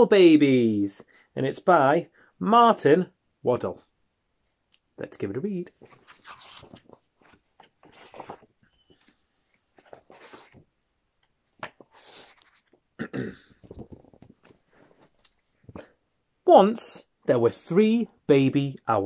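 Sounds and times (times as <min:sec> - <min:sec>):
book pages rustling: 0:05.7 - 0:12.9, 0:13.6 - 0:16.0.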